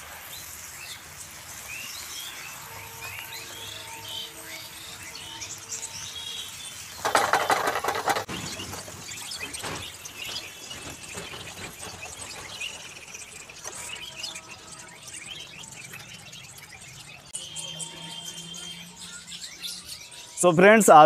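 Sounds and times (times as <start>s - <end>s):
potatoes frying in hot oil: 0.0s - 11.1s
birds chirping: 0.0s - 21.0s.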